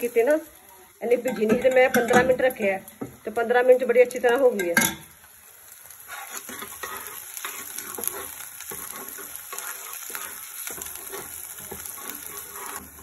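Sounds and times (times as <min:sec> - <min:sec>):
onions sizzling in hot oil: 0:00.0 - 0:13.0
metal spoon scraping pan: 0:01.1 - 0:02.4, 0:06.1 - 0:13.0.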